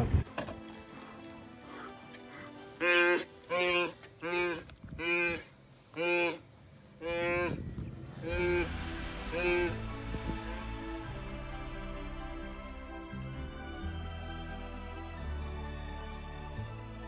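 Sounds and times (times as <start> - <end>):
wildebeest bleating in distress: 1.7 - 6.4, 7.0 - 7.6, 8.2 - 9.8.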